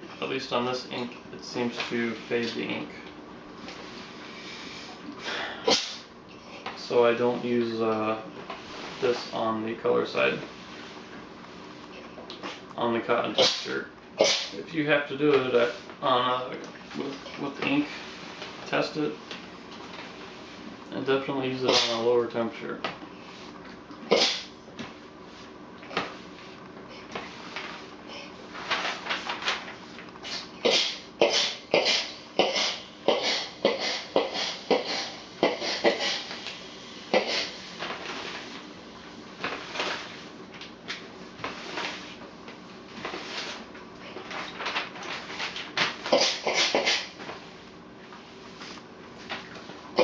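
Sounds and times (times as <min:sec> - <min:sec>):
paper rustling: 0:28.5 - 0:30.1, 0:39.4 - 0:40.3, 0:42.9 - 0:46.1.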